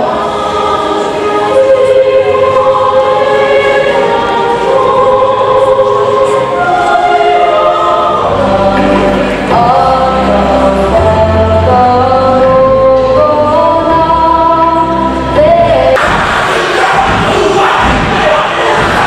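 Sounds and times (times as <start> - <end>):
choir singing an anthem: 0.0 - 19.0.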